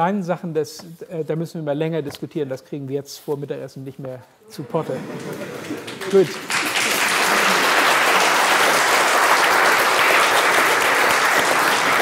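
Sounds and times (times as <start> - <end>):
audience applause: 4.7 - 12.0.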